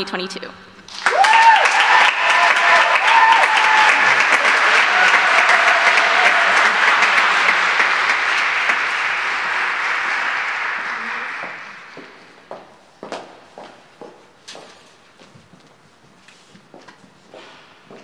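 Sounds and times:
people whooping: 0:00.9 - 0:12.3
audience applauding: 0:00.9 - 0:12.7.

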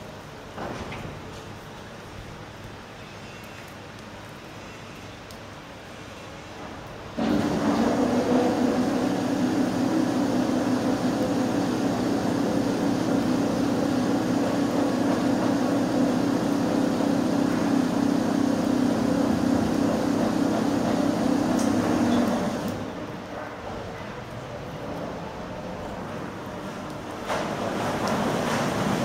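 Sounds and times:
machinery humming: 0:07.2 - 0:23.2.

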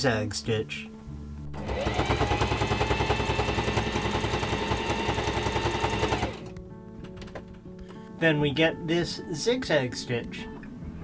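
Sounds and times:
sewing machine stitching: 0:01.6 - 0:06.5.

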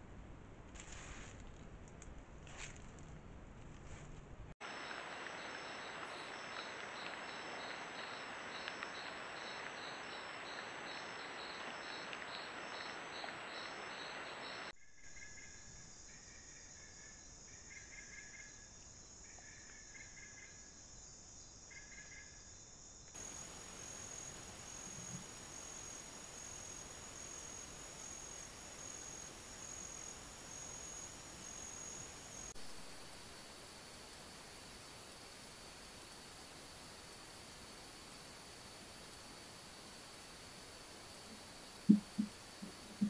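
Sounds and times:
crickets trilling: 0:04.6 - 0:14.7, 0:23.2 - 0:43.0
insects pulsed chirping: 0:04.6 - 0:16.4, 0:23.1 - 0:43.0
hiss: 0:23.2 - 0:43.0.

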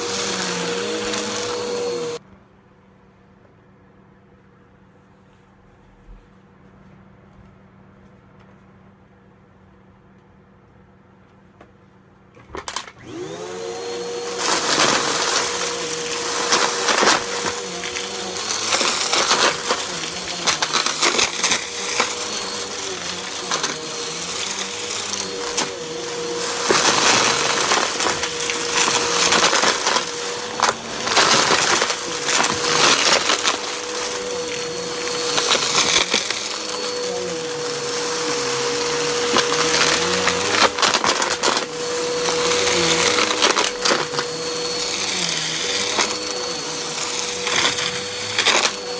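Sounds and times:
vacuum cleaner motor whine: 0:00.0 - 0:02.2, 0:12.4 - 0:48.9
brushroll rattling debris: 0:14.2 - 0:44.4.

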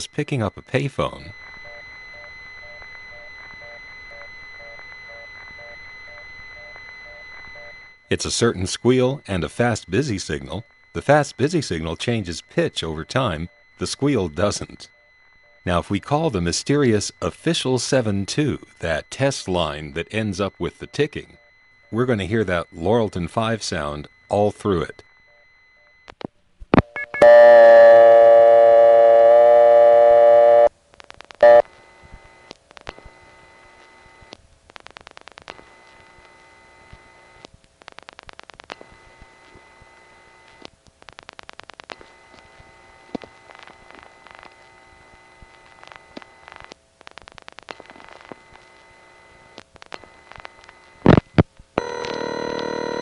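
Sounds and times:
fast busy signal buzzes: 0:00.0 - 0:26.2, 0:27.0 - 0:53.0
ringback tone: 0:26.9 - 0:30.7, 0:31.4 - 0:31.6, 0:51.8 - 0:53.0
telephone line clicks: 0:49.9 - 0:53.0
telephone dial tone: 0:51.8 - 0:53.0.

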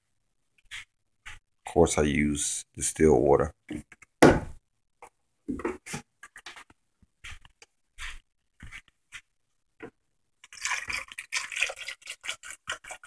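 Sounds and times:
plastic jug knocking: 0:03.7 - 0:04.6
water pouring into blender jar: 0:10.4 - 0:13.0.

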